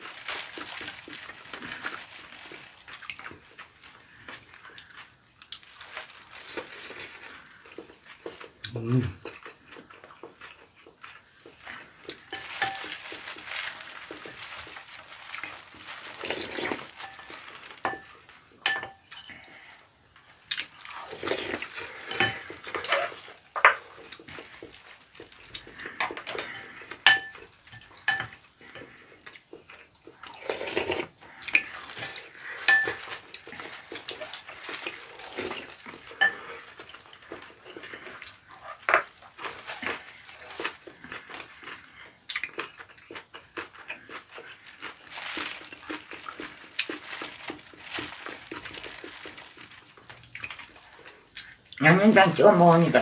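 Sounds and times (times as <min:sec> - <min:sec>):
chewing: 0:00.0 - 0:51.8
chopsticks clinking on bowls: 0:12.3 - 0:13.0, 0:17.0 - 0:19.3, 0:26.4 - 0:28.9, 0:32.4 - 0:33.7, 0:36.1 - 0:37.8.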